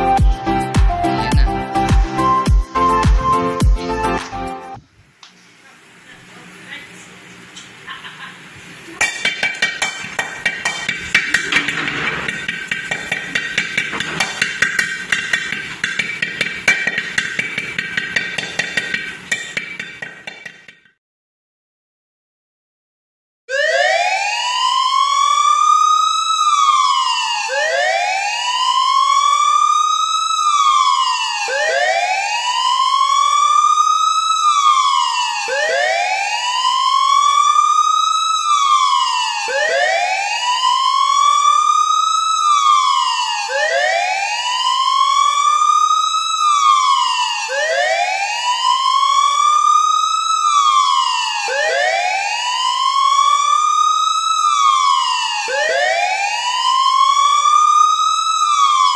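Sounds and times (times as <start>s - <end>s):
wailing siren: 0.0s - 4.8s, 23.5s - 58.9s.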